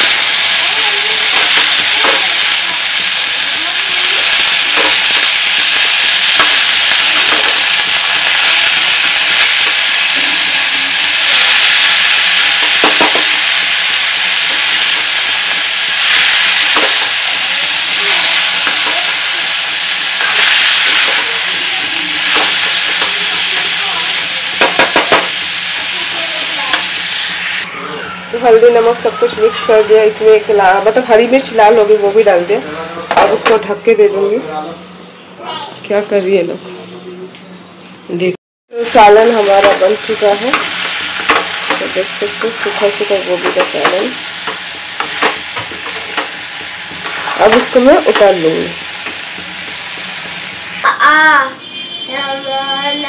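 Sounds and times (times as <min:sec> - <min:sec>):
vegetables sizzling in a pan: 0:00.0 - 0:27.7, 0:28.3 - 0:34.1, 0:38.7 - 0:51.5
steel spatula scraping a pan: 0:40.5 - 0:48.4.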